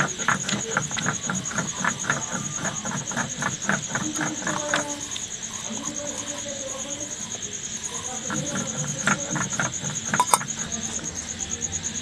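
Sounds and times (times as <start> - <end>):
frog croaking: 0.0 - 12.0
high-pitched insect trill: 0.0 - 12.0.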